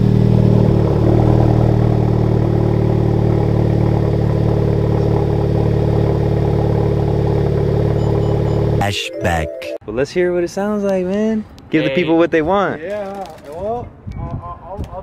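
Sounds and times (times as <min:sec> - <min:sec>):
car engine idling: 0:00.0 - 0:08.8.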